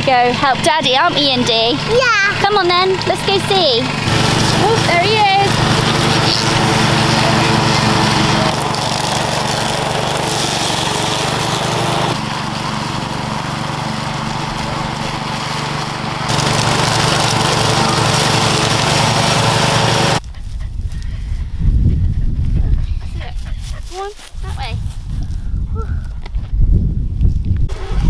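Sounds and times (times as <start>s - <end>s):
ride-on lawn mower engine: 0.0s - 20.2s, 27.7s - 28.0s.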